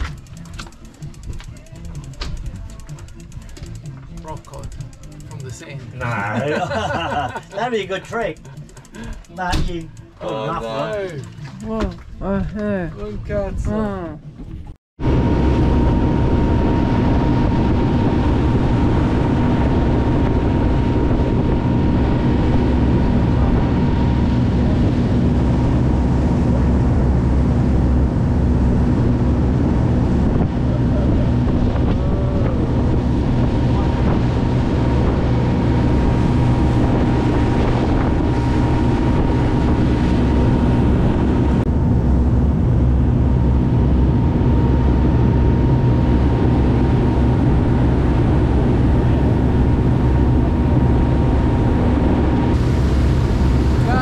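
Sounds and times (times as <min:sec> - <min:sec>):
boat engines droning: 0:00.0 - 0:54.0
wind on the microphone: 0:13.5 - 0:54.0
thin steady whine: 0:15.0 - 0:54.0
water rushing past hull: 0:15.0 - 0:54.0.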